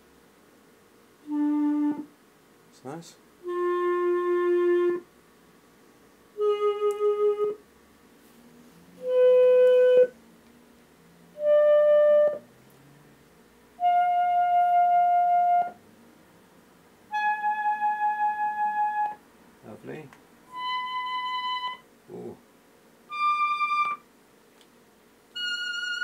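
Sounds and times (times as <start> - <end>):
clarinet sustained notes: 1.2 - 2.1, 3.4 - 5.1, 6.4 - 7.6, 9.0 - 10.2, 11.3 - 12.5, 13.8 - 15.8, 17.1 - 19.2, 20.5 - 22.4, 23.1 - 24.0, 25.4 - 26.0.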